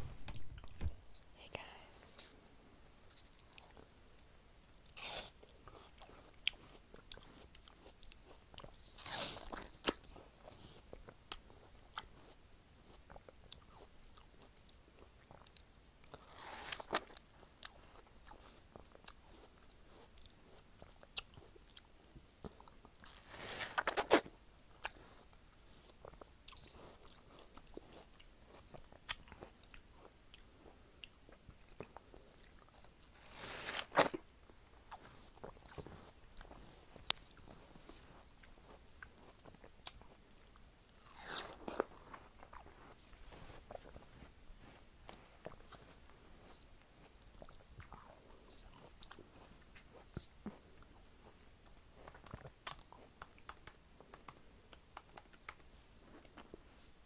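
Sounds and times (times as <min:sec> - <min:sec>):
wet crunchy chewing: 0:04.8 - 0:56.6
biting into watermelon: 0:22.9 - 0:25.0.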